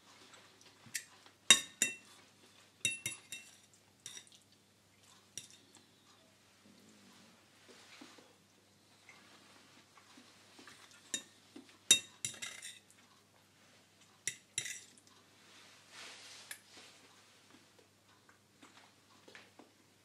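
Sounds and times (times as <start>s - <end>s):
metal fork scraping ceramic plate: 11.9s - 12.8s.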